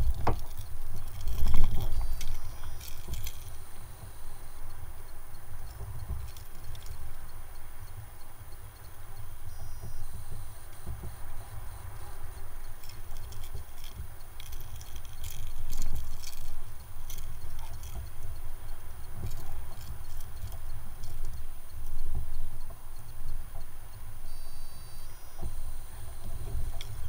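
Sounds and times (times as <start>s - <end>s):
fishing gear clicks and rattles: 0.0s - 4.2s, 5.6s - 7.1s, 12.1s - 22.2s, 25.5s - 27.0s
wind and water rumble: 0.0s - 24.3s, 25.4s - 27.0s.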